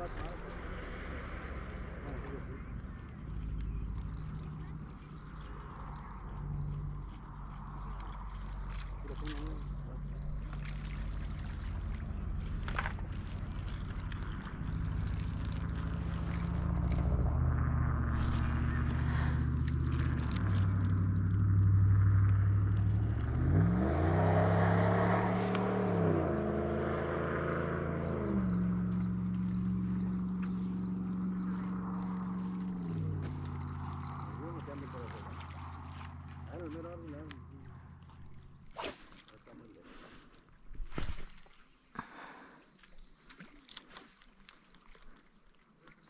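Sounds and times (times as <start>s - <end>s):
engine running: 0.0s - 43.9s
brief rustle: 38.1s - 45.4s.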